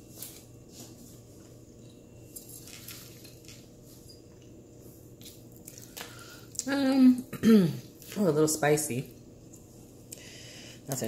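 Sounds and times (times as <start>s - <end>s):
low steady hum: 0.0s - 11.0s
handling rustles: 2.3s - 4.3s.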